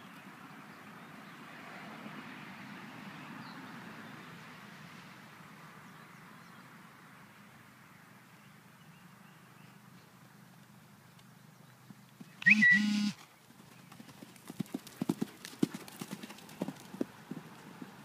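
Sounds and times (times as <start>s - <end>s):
horse hooves striking ground: 9.6s - 18.0s
short loud steady-pitched sound: 12.4s - 13.2s.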